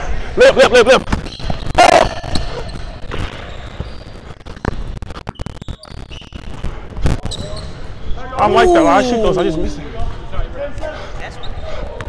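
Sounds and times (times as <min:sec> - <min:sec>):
person shouting: 0:08.4 - 0:09.7.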